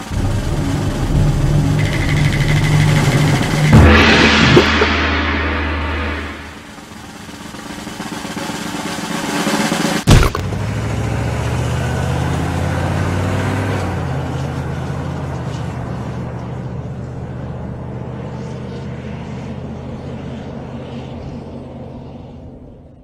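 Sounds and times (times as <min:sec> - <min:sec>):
low vehicle engine rumble: 0:00.0 - 0:05.0, 0:10.4 - 0:23.0
rising whoosh: 0:00.0 - 0:07.1
sharp hit: 0:00.0 - 0:07.2.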